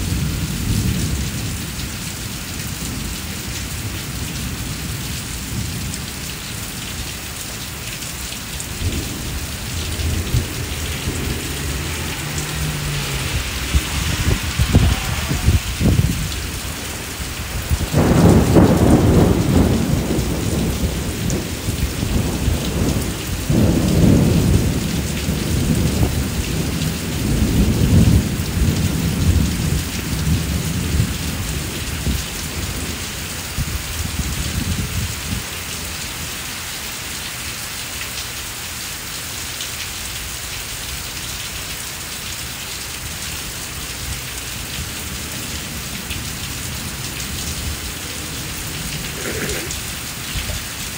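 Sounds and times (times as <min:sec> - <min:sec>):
heavy rain on patio and plants: 0:00.0 - 0:50.9
rolling thunder: 0:08.7 - 0:33.0.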